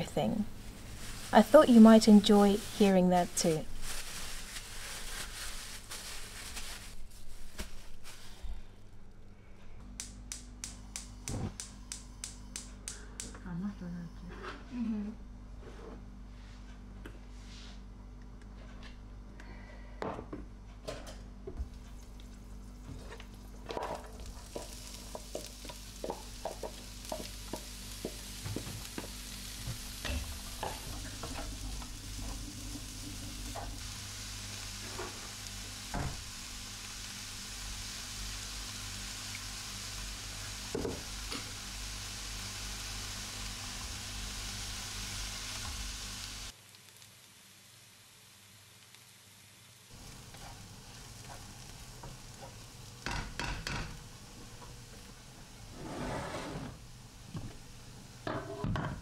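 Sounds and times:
onions sizzling in frying pan: 0.0 - 8.5, 21.6 - 56.0, 56.8 - 59.0.

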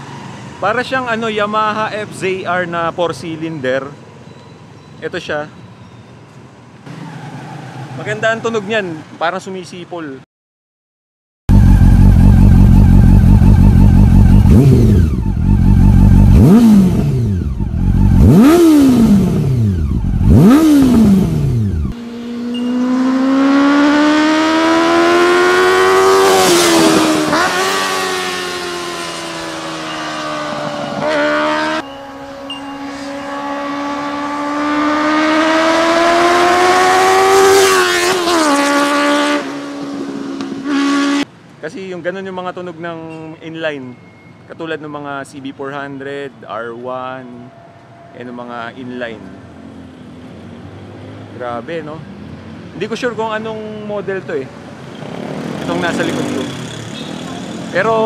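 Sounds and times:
motorcycle engine revving: 11.5 - 41.3, 54.8 - 58.0.

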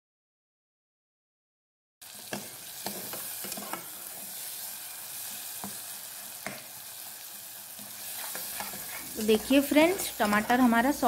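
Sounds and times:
food sizzling in hot oil: 2.0 - 11.0
spatula scraping pot: 7.8 - 11.0.

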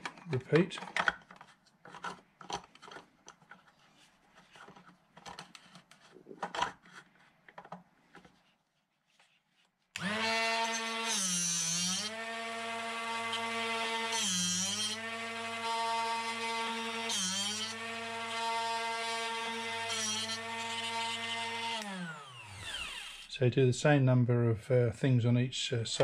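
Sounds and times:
drill chuck clicks and rubbing: 0.0 - 3.8
sharpener motor whine: 10.0 - 23.3.

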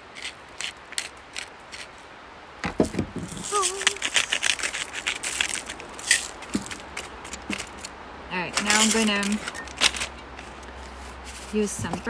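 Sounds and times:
spice grinder crunching clicks: 3.4 - 7.9.

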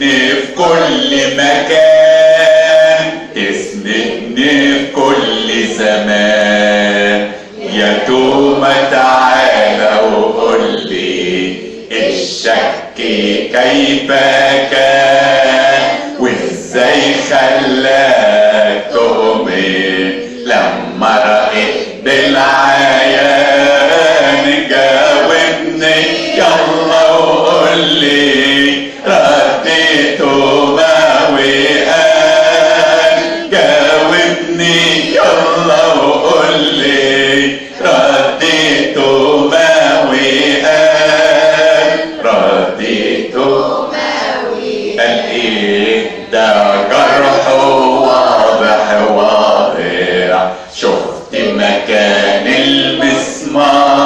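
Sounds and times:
man singing: 0.0 - 43.6, 45.0 - 54.0
group singing a hymn: 0.0 - 54.0.

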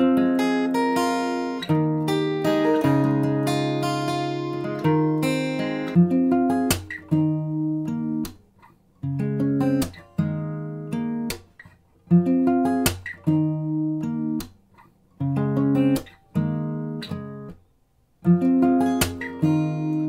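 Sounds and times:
plucked chords: 0.0 - 8.4, 18.2 - 20.0.

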